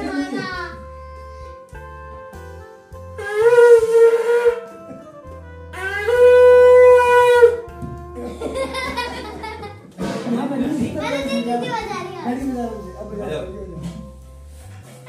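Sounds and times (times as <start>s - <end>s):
conch shell blasts: 3.2s - 4.8s, 5.7s - 7.7s.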